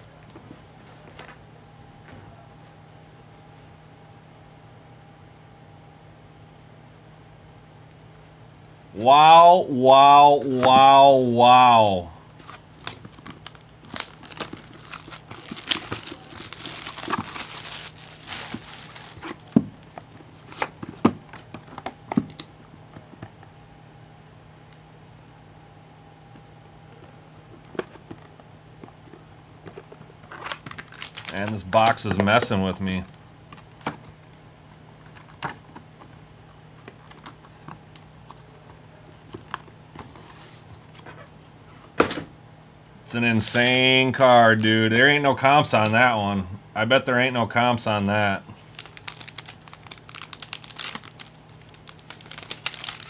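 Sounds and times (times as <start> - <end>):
plastic wrap tearing and crinkling: 12.4 - 20.7, 30.3 - 32.0, 48.6 - 53.0
foil pack rustle: 12.4 - 20.8, 30.2 - 32.4, 48.6 - 53.0.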